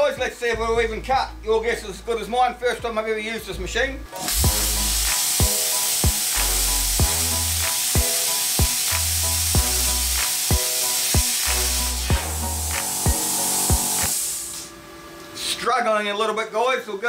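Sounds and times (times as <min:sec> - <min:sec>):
background music with steady beat: 0:00.0 - 0:14.8
plasma cutter hissing: 0:04.2 - 0:14.8.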